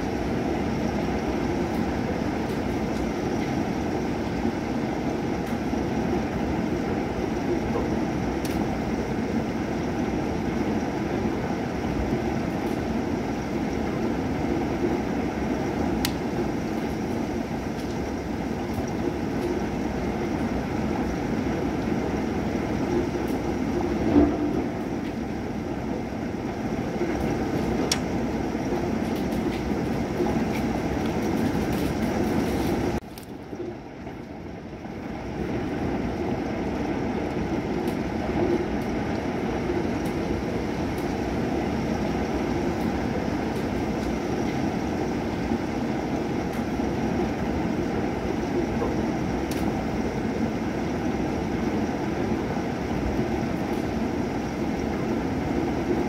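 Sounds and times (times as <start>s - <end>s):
heavy rain rushing: 0.0s - 56.0s
thunder rumble: 0.0s - 56.0s
raindrop ticks: 16.0s - 17.0s, 17.7s - 19.6s, 27.2s - 34.4s, 36.7s - 39.3s, 48.6s - 49.8s.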